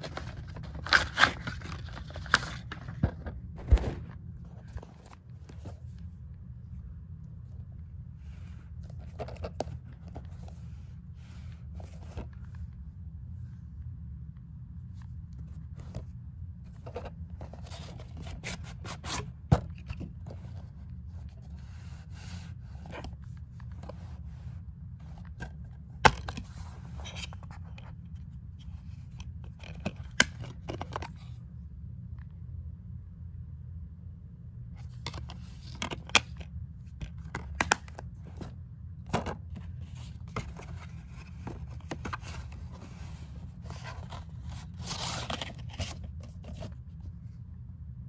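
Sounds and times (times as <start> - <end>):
low hum: 0.0 - 48.0
plastic case scraping and rustling: 8.8 - 10.6, 34.9 - 46.8.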